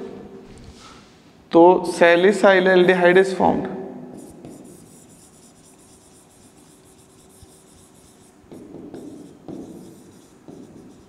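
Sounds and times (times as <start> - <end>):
marker scratching on board: 4.2 - 11.0.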